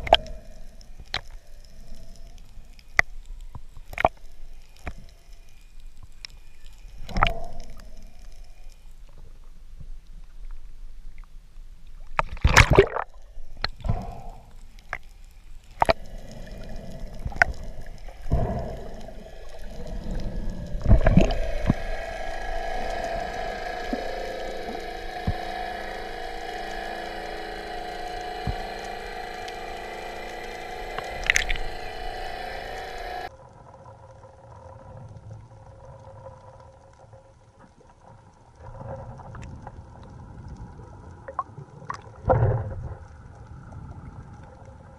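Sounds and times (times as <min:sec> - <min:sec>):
steady drone: 0:00.0 - 0:03.0, 0:13.5 - 0:33.3
underwater hiss: 0:00.0 - 0:09.3, 0:12.7 - 0:33.3.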